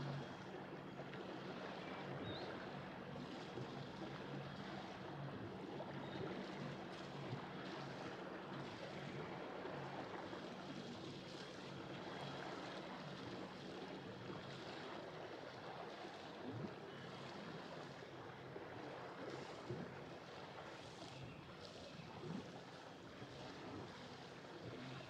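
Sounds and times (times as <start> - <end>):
boat engine low hum: 0.0 - 25.0
wind: 0.0 - 25.0.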